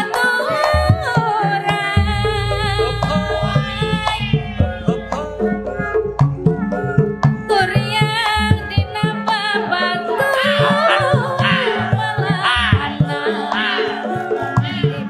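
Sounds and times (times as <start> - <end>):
woman singing into a microphone: 0.0 - 5.9, 6.7 - 15.0
hand drum strokes: 1.7 - 9.5
deep sustained tone: 2.0 - 8.3
steady instrument tones: 2.0 - 9.2.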